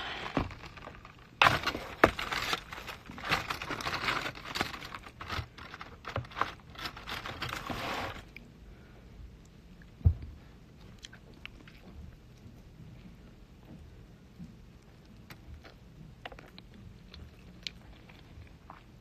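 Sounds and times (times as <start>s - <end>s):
aluminium foil crinkling: 0.0s - 8.3s.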